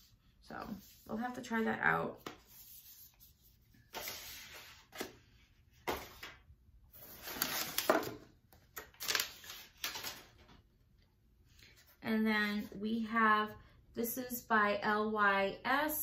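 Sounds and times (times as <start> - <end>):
cosmetics packaging rustling: 7.0 - 10.4.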